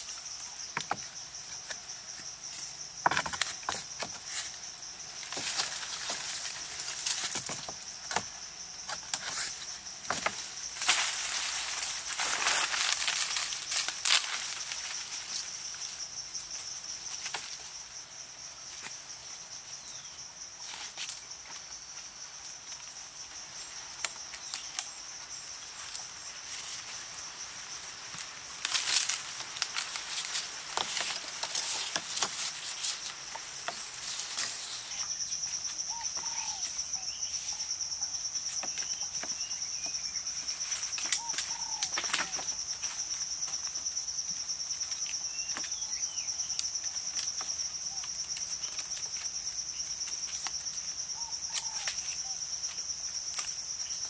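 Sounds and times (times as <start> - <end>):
insects droning: 0.0 - 54.0
branches snapping and rustling: 5.2 - 15.8, 28.0 - 35.6.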